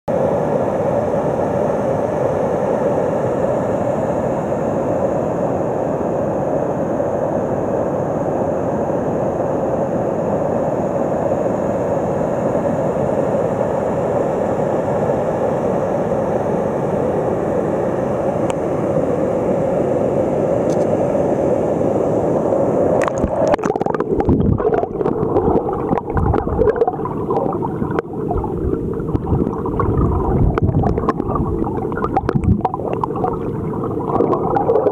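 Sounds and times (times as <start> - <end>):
underwater gurgling: 22.9 - 34.9.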